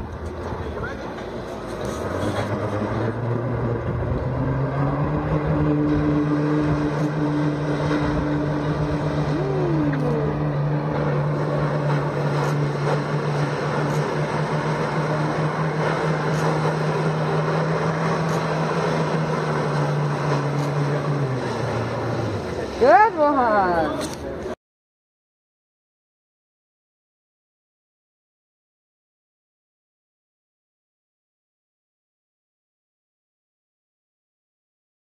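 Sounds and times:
jet ski engine revving: 0:00.1 - 0:24.5.

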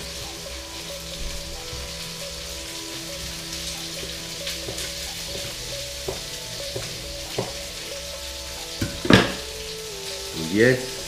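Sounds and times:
chicken frying sizzle: 0:00.0 - 0:11.0
knife tapping cutting board: 0:04.6 - 0:07.7, 0:08.8 - 0:09.5.

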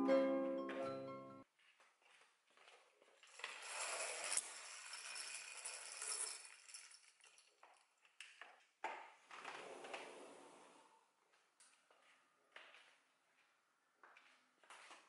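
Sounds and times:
window blind rustling and rattling: 0:03.3 - 0:06.6.

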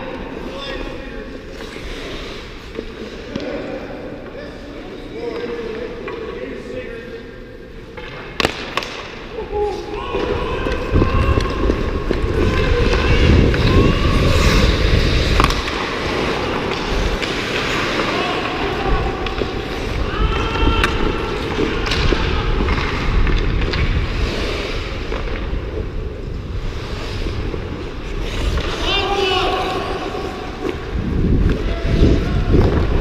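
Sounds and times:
skates scraping on ice: 0:00.2 - 0:03.7, 0:08.1 - 0:33.0
stick hitting puck: 0:08.0 - 0:09.2, 0:15.2 - 0:19.8, 0:20.4 - 0:23.9
microphone rumble: 0:10.2 - 0:17.2.

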